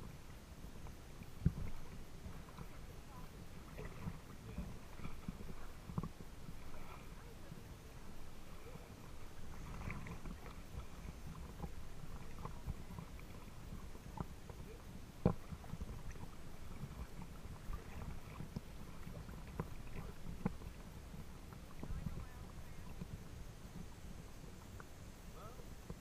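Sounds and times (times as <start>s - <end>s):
small splashes and ticks: 0.0s - 26.0s
water lapping and sloshing: 0.0s - 26.0s.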